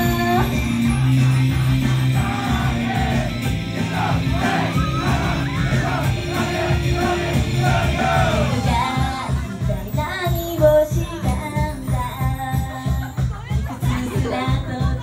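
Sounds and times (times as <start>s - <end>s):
rock-style backing track: 0.0s - 10.9s
shouts: 2.2s - 8.6s
women singing: 8.1s - 15.0s.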